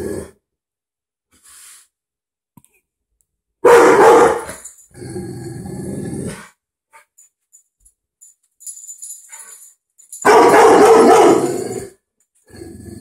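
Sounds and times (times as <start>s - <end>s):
puppy barking: 3.6s - 4.6s, 10.2s - 11.6s.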